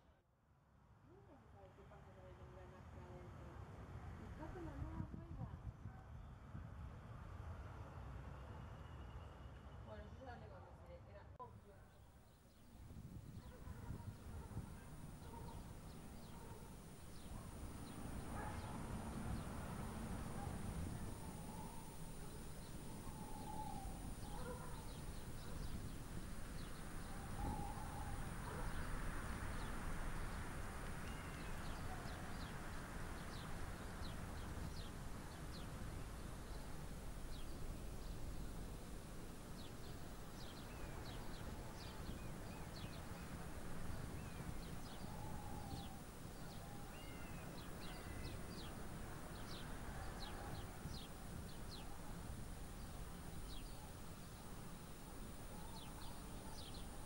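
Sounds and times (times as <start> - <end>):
birds chirping: 11.7 - 57.0
lower bird calls: 12.6 - 57.0.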